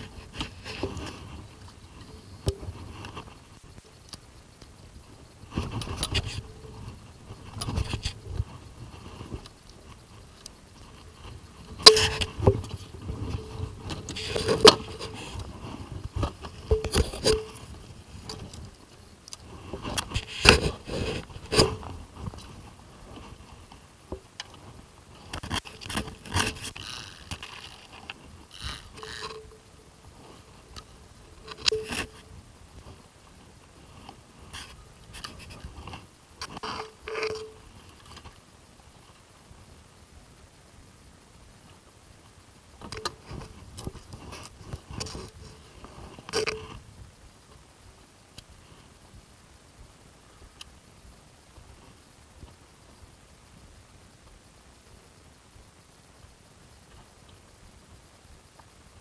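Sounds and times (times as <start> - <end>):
handling noise scraping and knocking: 0.0 - 3.9, 10.8 - 18.7, 19.6 - 23.4, 25.3 - 30.4, 31.4 - 32.3, 34.6 - 37.6.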